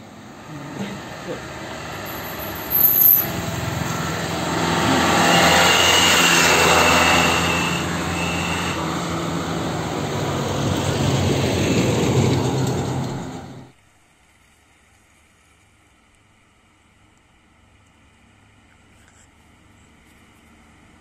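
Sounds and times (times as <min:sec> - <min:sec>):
motorbikes passing: 0:00.0 - 0:13.7
truck engines and tyres: 0:00.0 - 0:13.8
thin high whine: 0:00.5 - 0:09.8.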